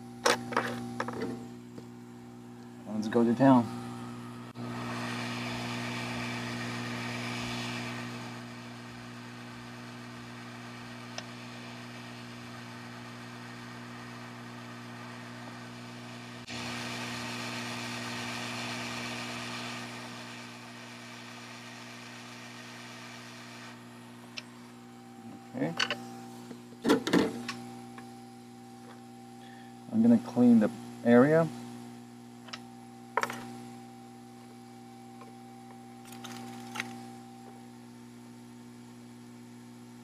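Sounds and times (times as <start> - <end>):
hot air blower hissing: 0.0 - 28.2.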